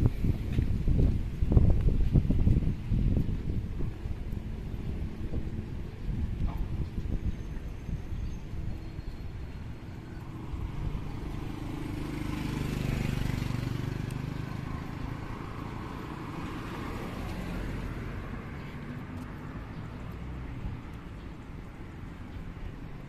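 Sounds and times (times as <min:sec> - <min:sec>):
street noise: 0:00.0 - 0:23.0
motorcycle engine passing: 0:10.1 - 0:18.6.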